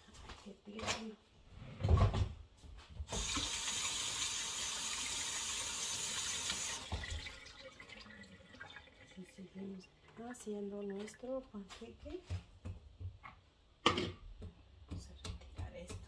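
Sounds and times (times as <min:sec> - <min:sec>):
faucet running into sink: 0:03.1 - 0:09.6.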